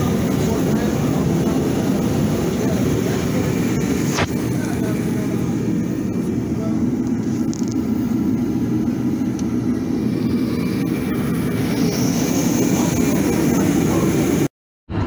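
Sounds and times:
forced-air heater rushing: 0.0s - 15.0s.

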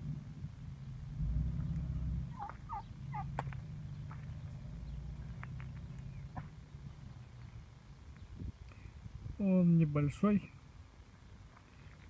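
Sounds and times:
turkey calling: 2.3s - 3.4s.

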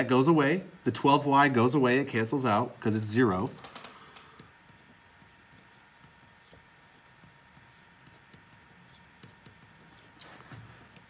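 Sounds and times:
pen scratching on paper: 4.4s - 11.0s.

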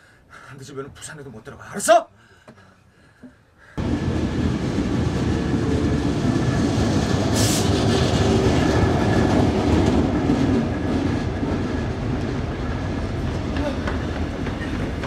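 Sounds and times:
diesel locomotive running: 3.8s - 15.0s.

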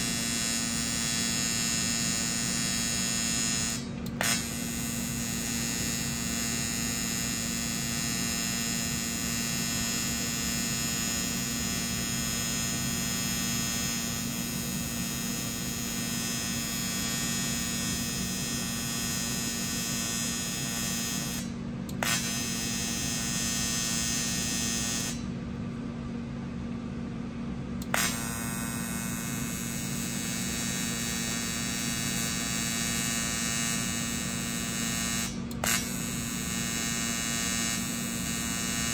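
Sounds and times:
welding arc buzzing: 0.0s - 25.4s, 27.8s - 38.9s
machine low hum: 0.0s - 38.9s.

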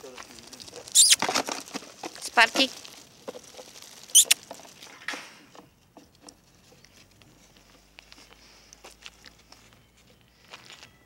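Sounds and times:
footsteps on dirt: 6.7s - 11.0s.

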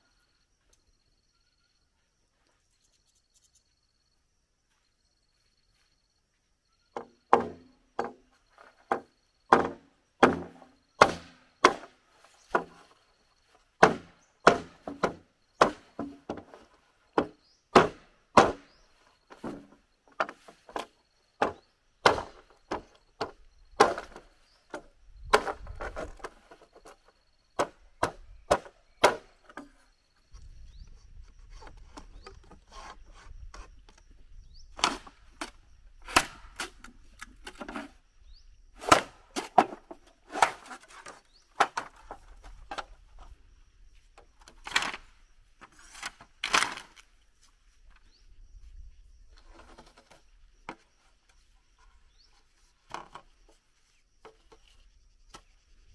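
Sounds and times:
hard knocks on bamboo pole: 7.0s - 8.2s, 8.9s - 11.9s, 13.8s - 16.5s, 17.2s - 18.7s, 21.4s - 24.2s, 27.6s - 29.3s
knife chopping bamboo: 8.9s - 11.9s, 13.8s - 16.4s, 17.2s - 18.7s, 21.4s - 24.2s, 38.8s - 39.7s
rubbing and scraping: 30.9s - 33.9s, 38.8s - 42.8s.

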